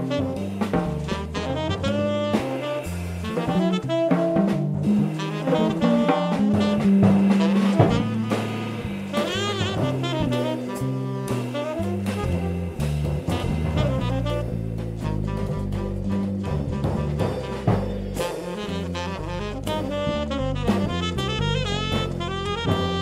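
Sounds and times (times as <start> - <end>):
cymbal and drum strokes: 0.0 - 23.0
electric bass: 0.0 - 23.0
saxophone lead line: 0.0 - 23.0.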